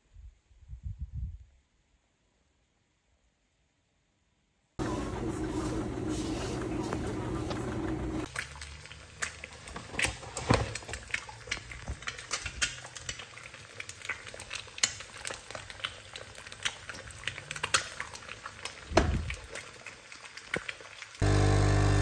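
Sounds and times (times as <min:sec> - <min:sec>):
eggs frying in crackling oil: 0:07.8 - 0:22.0.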